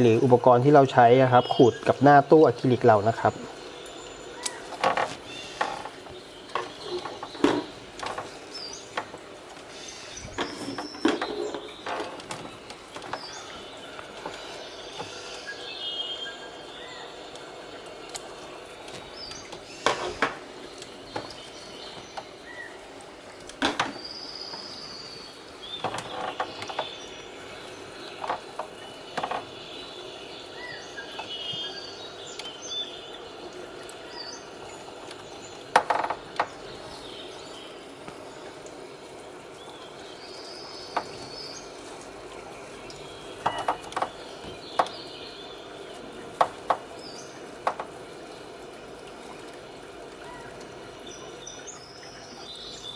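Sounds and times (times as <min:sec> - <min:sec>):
steady low hiss: 0:00.0 - 0:52.9.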